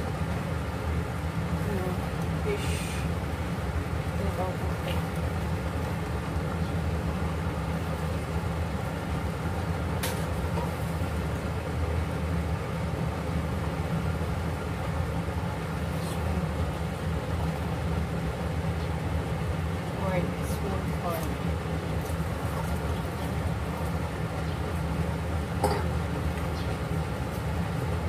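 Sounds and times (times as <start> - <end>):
kitchen machinery rumbling: 25.4 - 27.1.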